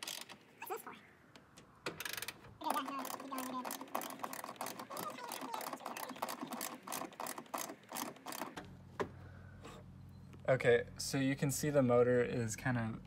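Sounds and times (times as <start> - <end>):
faint steady hum: 0.0 - 13.0
socket ratchet clicking: 2.0 - 8.6.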